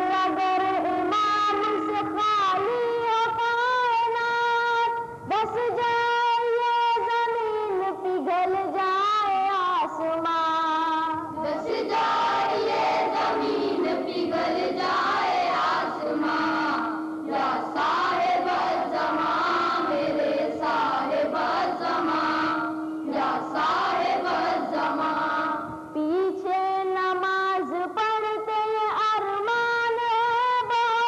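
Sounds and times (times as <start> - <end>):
boys choir singing: 11.3 - 26.0
steady held note: 11.9 - 26.0.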